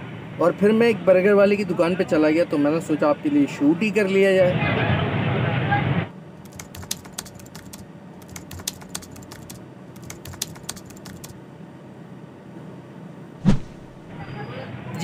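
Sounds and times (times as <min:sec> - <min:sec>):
faint steady background noise: 0:00.0 - 0:15.0
keyboard key clicks: 0:06.4 - 0:11.3.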